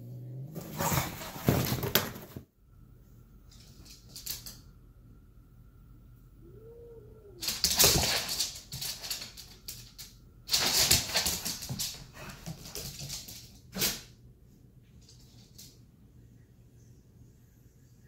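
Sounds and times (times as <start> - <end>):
dog scuffling and huffing: 0.6 - 2.4.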